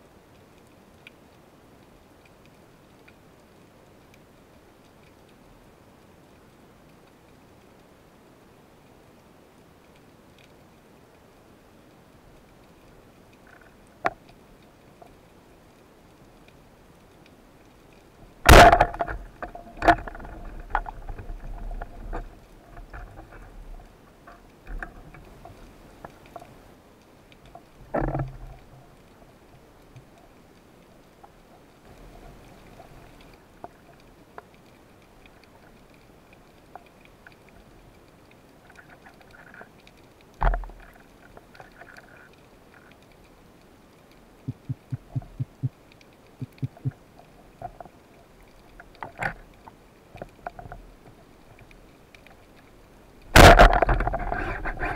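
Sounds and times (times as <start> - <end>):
faint underwater hiss: 0.0 - 54.9
speargun firing crack: 18.5 - 19.0.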